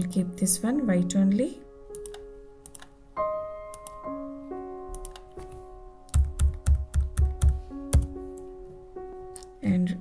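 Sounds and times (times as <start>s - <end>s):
computer keyboard keystrokes: 1.9s - 2.9s, 4.9s - 8.1s.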